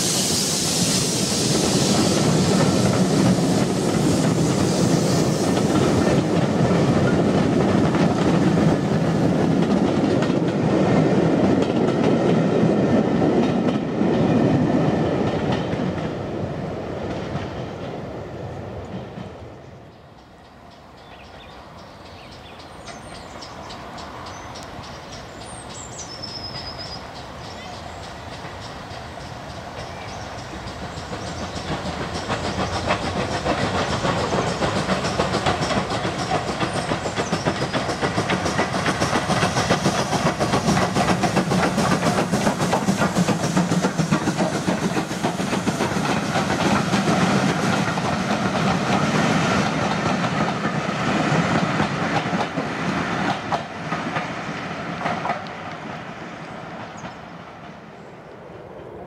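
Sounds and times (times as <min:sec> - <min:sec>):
steam locomotive passing: 0:00.0 - 0:59.0
coaches clattering over rail joints: 0:26.5 - 0:56.0.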